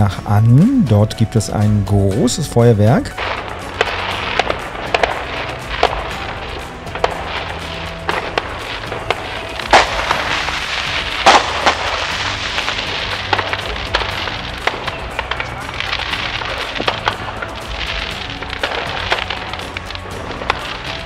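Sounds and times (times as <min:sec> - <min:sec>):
firework rockets banging: 0:03.1 - 0:21.0.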